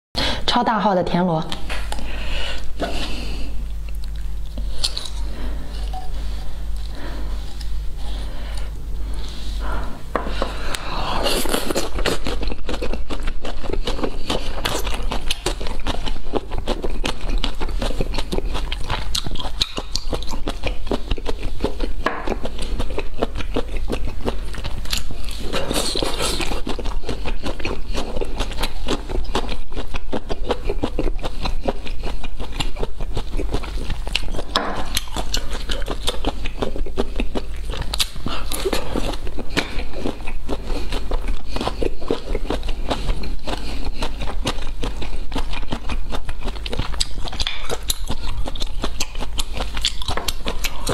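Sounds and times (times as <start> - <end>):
low hum: 0.2 - 29.6
chewing: 1.5 - 9.4, 10.2 - 50.9.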